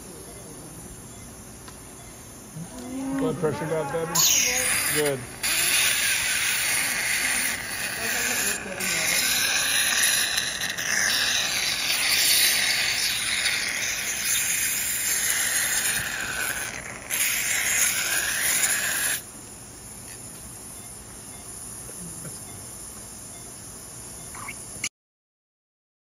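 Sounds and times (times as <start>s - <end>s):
surgical suction hissing: 4.2s - 19.3s.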